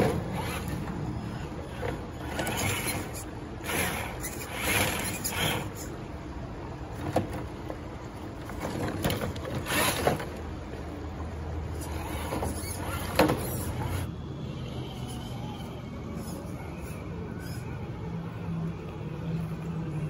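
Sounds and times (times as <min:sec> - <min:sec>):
electric motor whirring: 0:00.0 - 0:05.9.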